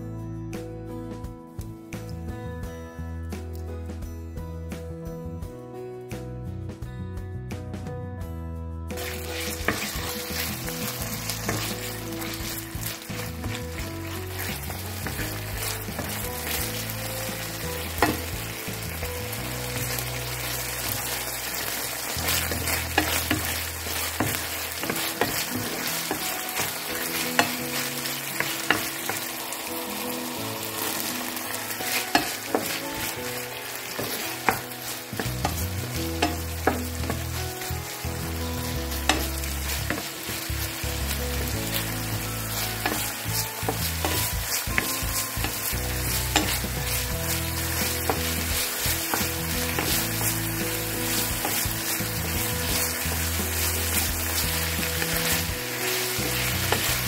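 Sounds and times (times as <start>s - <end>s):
food sizzling in a pan: 8.9s - 57.0s
wooden spoon stirring: 9.0s - 57.0s
spoon knocking on pan: 17.3s - 18.4s, 39.0s - 40.2s, 42.8s - 46.9s.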